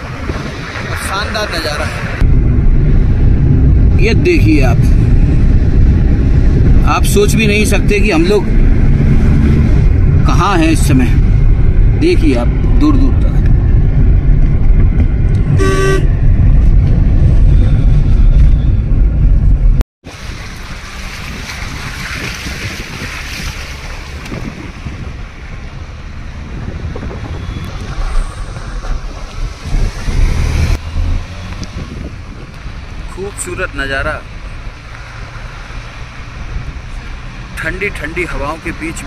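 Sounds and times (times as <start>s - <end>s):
wind buffeting microphone: 0.0s - 33.2s
vehicle horn honk: 15.6s - 16.2s.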